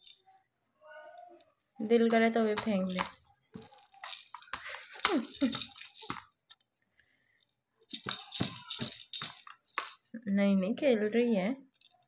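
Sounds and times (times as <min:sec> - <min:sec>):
plastic baby rattle shaking: 0:00.0 - 0:00.3, 0:01.8 - 0:06.6, 0:07.9 - 0:10.1, 0:11.7 - 0:12.0.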